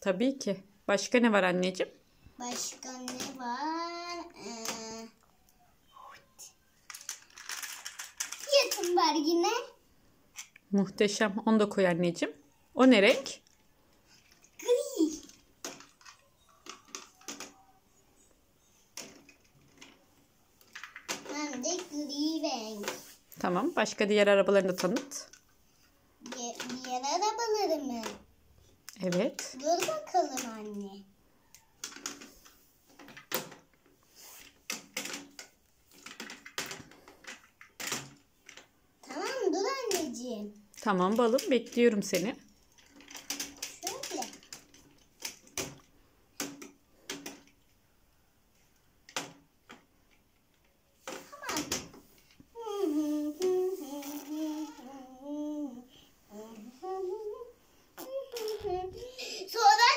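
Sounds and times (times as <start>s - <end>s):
toy cars clicking on plastic: 2.5s - 5.1s, 6.8s - 9.7s, 13.4s - 17.6s, 18.9s - 20.0s, 20.6s - 23.1s, 26.2s - 28.3s, 28.9s - 33.8s, 34.4s - 47.8s, 48.8s - 54.9s
child humming a tune: 52.6s - 59.0s.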